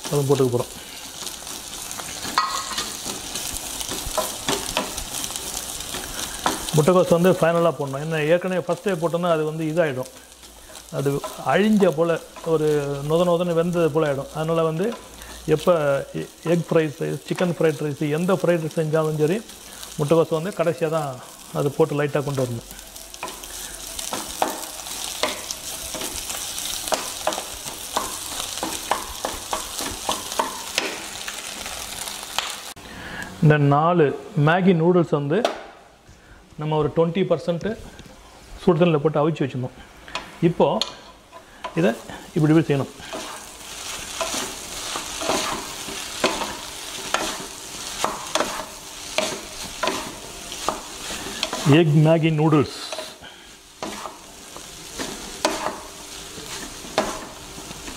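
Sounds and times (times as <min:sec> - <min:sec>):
food sizzling in a frying pan: 0:00.0 - 0:33.5, 0:37.8 - 0:57.9
spatula scraping a pan: 0:42.9 - 0:51.8, 0:52.8 - 0:57.9.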